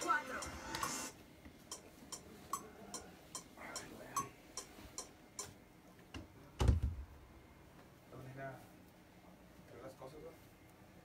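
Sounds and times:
metronome ticking: 1.7s - 5.6s.

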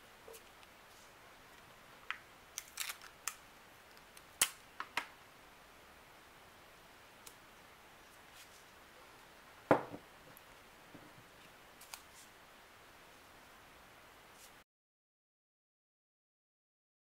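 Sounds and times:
sharp knock on glass jar: 9.7s - 10.0s.

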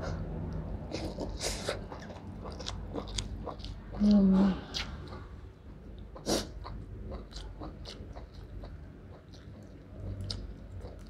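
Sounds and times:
chewing food with mouth smacks: 0.0s - 11.0s.

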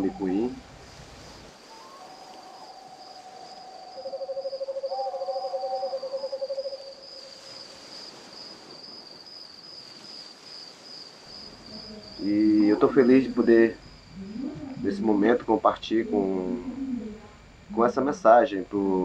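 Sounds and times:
insect trilling: 0.0s - 19.0s
animal call with pulsing trill: 1.6s - 7.0s.

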